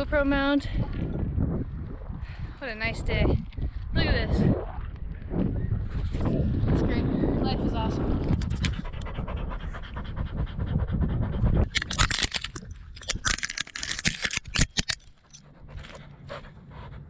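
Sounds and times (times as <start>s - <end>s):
low rumble: 0.0s - 14.6s
leaves and twigs scraping camera: 11.7s - 16.1s.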